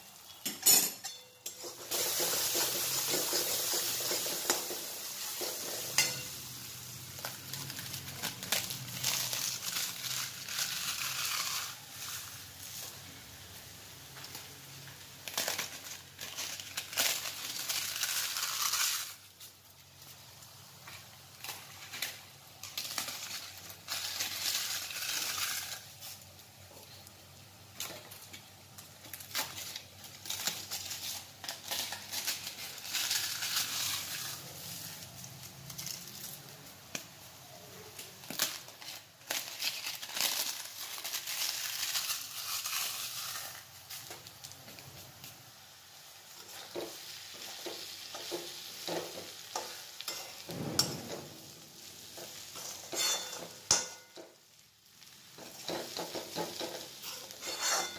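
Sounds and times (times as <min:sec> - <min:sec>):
papads crackling and crunching: 0:07.0 - 0:12.1, 0:37.9 - 0:45.4.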